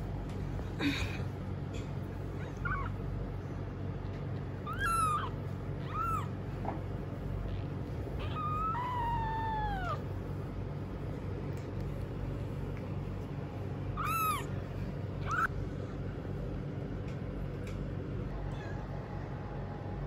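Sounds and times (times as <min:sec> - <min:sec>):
low hum: 0:00.0 - 0:20.0
kitten mewing: 0:02.4 - 0:03.0, 0:04.6 - 0:06.4, 0:07.4 - 0:10.2, 0:13.9 - 0:14.5, 0:15.2 - 0:15.5.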